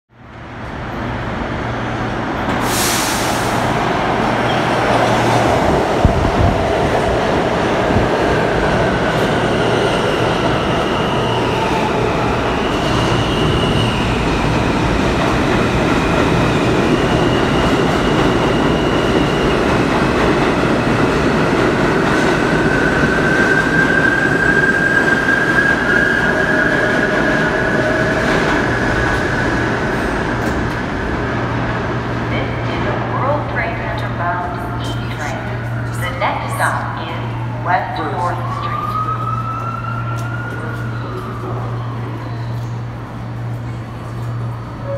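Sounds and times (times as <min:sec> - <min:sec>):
train wheels rumbling on rails: 0:00.9 - 0:37.5
high squealing of train: 0:02.5 - 0:05.2, 0:08.7 - 0:21.4, 0:22.1 - 0:31.6, 0:38.4 - 0:44.9.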